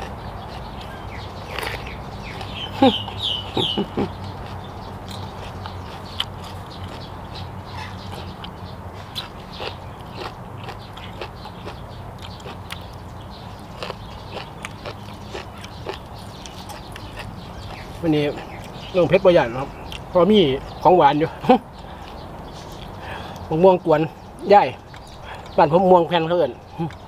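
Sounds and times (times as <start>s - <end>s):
poultry calls: 0.0s - 19.0s
chewing crunchy vegetables: 0.0s - 20.7s, 21.3s - 23.5s, 24.2s - 25.8s, 26.5s - 27.0s.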